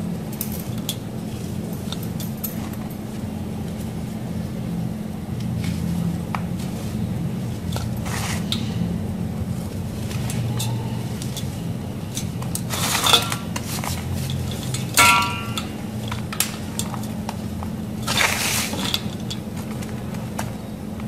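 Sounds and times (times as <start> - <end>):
glass ringing: 15.0 - 16.0.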